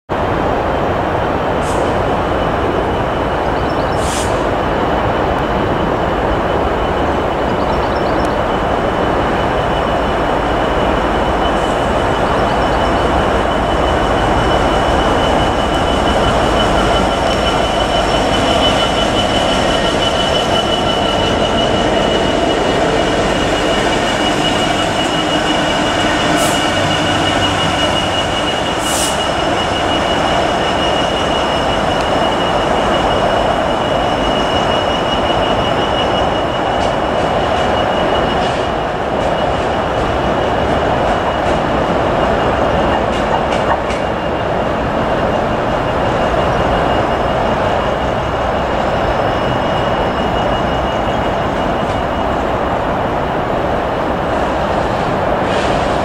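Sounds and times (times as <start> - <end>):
diesel locomotive engines: 0.1 - 56.0
high-pitched wheel squeal: 6.4 - 53.4.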